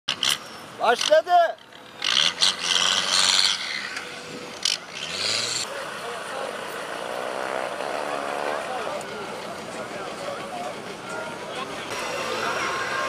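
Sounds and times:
engine revving hard: 2.0s - 3.9s, 4.6s - 5.7s
people's voices: 5.6s - 13.0s.

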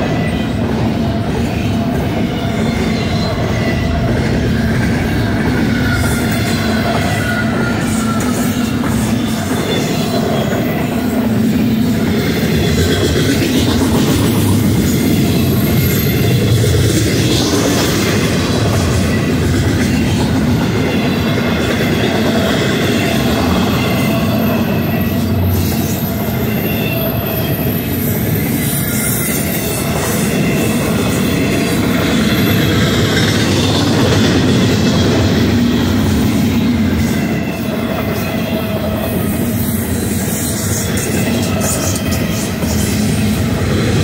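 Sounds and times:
high-pitched wheel squeal: 0.0s - 44.0s
steel wheels rumbling on rail: 0.0s - 44.0s.

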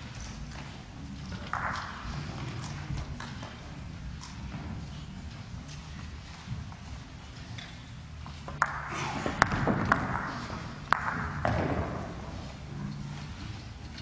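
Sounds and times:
low murmur of room: 0.0s - 14.0s
pool balls clacking: 0.6s - 3.6s, 8.4s - 12.8s.

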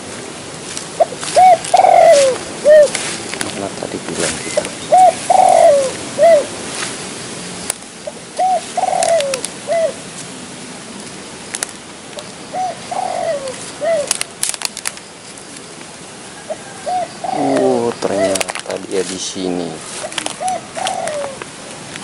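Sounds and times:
dove cooing: 0.9s - 3.1s, 4.0s - 6.6s, 8.0s - 10.1s, 12.2s - 14.2s, 16.2s - 21.7s
faint sharp clicks: 9.0s - 9.6s.

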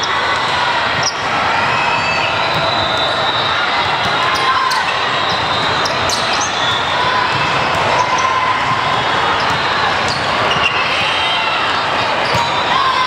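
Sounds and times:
crowd of voices: 0.0s - 13.0s
shoes squeaking on court: 4.1s - 6.9s, 12.2s - 12.6s.

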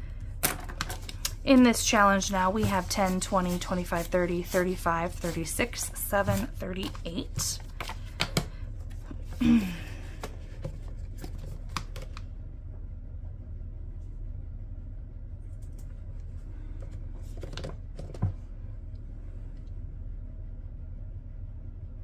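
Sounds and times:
steady low hum: 0.0s - 22.0s
paper and plastic pages rustling: 0.4s - 9.4s.

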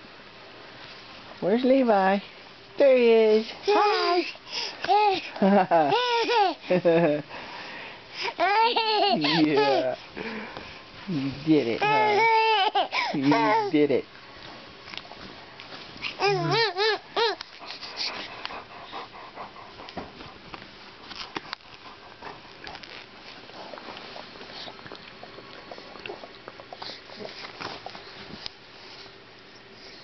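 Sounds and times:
baby warbling: 3.7s - 4.3s, 11.8s - 13.7s, 16.2s - 17.4s.

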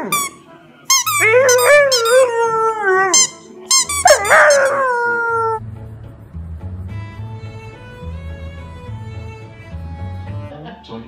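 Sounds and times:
squeaky rubber ball squealing: 0.0s - 2.4s, 3.1s - 5.1s.

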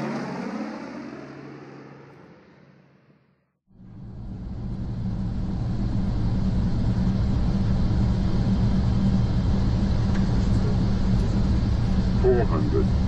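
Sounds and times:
turboprop engines droning: 0.0s - 13.0s
steady rushing noise: 3.9s - 13.0s.

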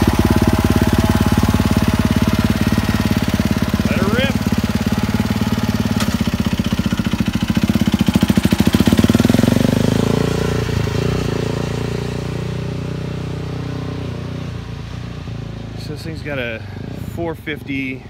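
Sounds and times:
dirt bike engine running: 0.0s - 18.0s.

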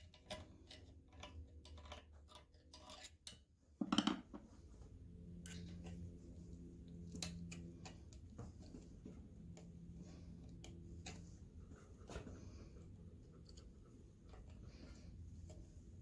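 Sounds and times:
metal tool clicking and scraping: 0.0s - 3.4s
low steady hum: 0.0s - 16.0s.

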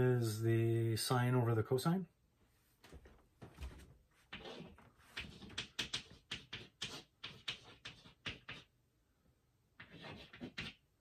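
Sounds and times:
chalk tapping and scratching: 4.2s - 8.7s, 9.8s - 10.8s.

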